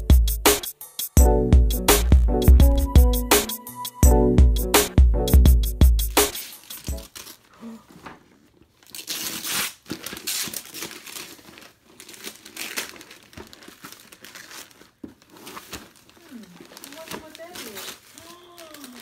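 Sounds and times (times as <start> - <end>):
wrapping paper tearing and rustling: 6.2 - 19.0.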